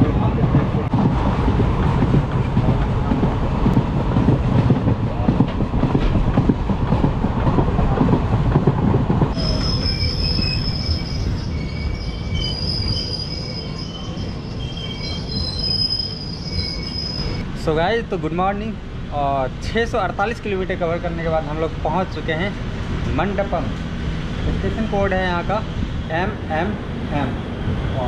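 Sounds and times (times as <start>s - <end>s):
train wheels rumbling on track: 0.0s - 28.0s
high wheel squeal: 9.3s - 17.4s.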